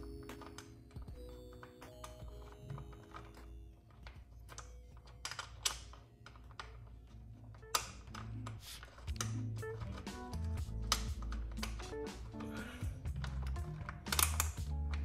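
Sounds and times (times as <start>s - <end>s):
metal and plastic clicks and taps: 7.6s - 15.0s.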